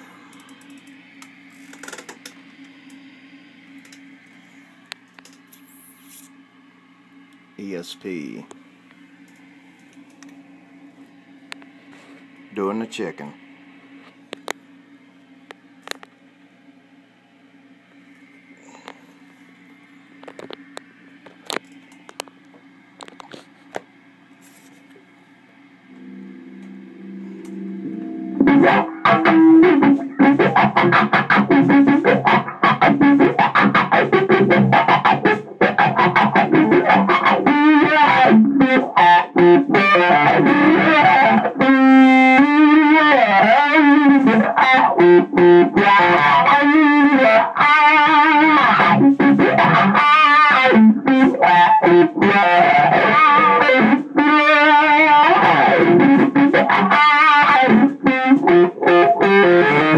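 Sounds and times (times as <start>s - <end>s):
distorted electric guitar runs: 0.0s - 5.4s, 25.6s - 59.9s.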